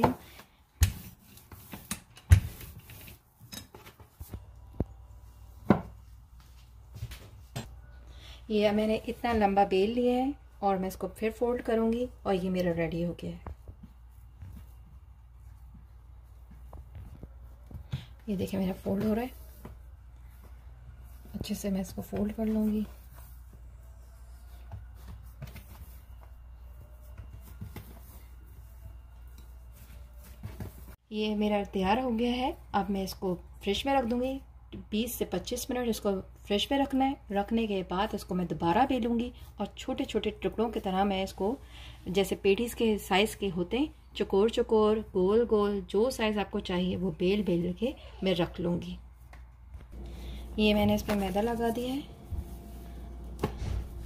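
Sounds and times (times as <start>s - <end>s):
steady low hum: 49.0s - 54.0s
rolling pin rolling dough: 50.0s - 54.0s.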